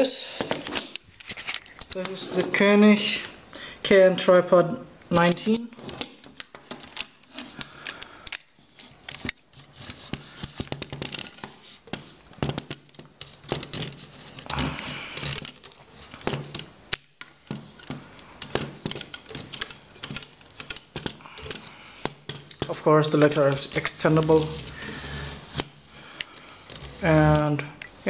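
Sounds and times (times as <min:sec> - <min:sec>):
rustling scrape: 0:23.0 - 0:25.9.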